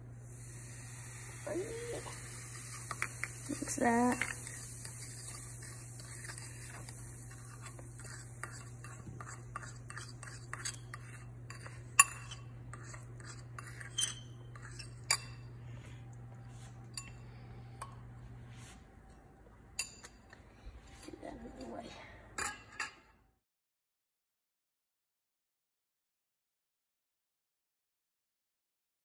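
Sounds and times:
metal spoon scraping ceramic bowl: 2.6 - 15.5
spoon clinking against bowl: 2.6 - 15.5, 16.8 - 18.0, 19.7 - 20.4.

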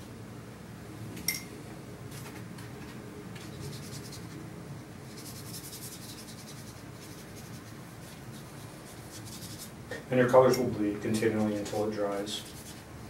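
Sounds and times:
steady low hum: 0.0 - 13.0
paintbrush scrubbing on paper: 3.4 - 4.4, 5.0 - 9.8, 11.1 - 12.9.

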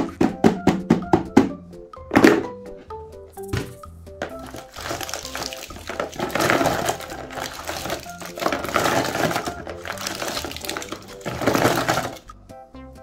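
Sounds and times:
background music: 0.0 - 13.0
plastic cups clattering: 2.1 - 2.5, 3.6 - 12.3.

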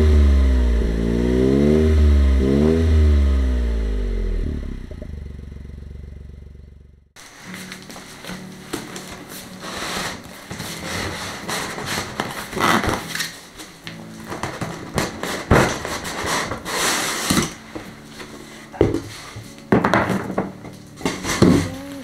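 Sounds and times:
cardboard flaps rustling and scraping: 7.2 - 22.0.

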